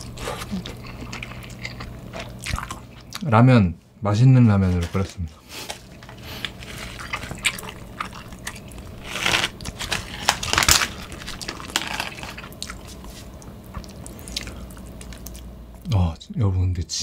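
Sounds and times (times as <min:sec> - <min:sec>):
plastic packet crinkling: 0:04.8 - 0:13.0.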